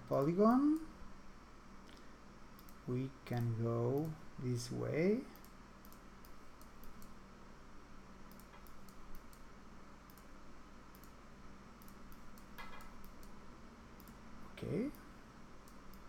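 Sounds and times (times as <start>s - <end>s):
low steady hum: 0.0s - 16.0s
computer mouse clicks: 1.8s - 2.8s, 3.4s - 4.2s, 5.3s - 7.2s, 8.3s - 9.5s, 10.1s - 10.3s, 10.9s - 11.2s, 11.8s - 13.4s, 14.0s - 14.2s, 14.8s - 16.0s.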